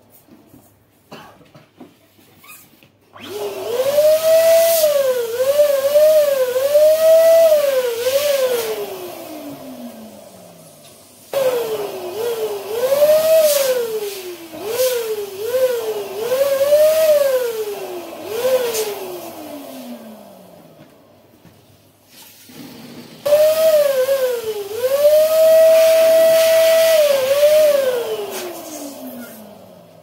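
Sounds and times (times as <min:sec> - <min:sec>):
balloon pump motor whining: 0:22.5 - 0:29.9.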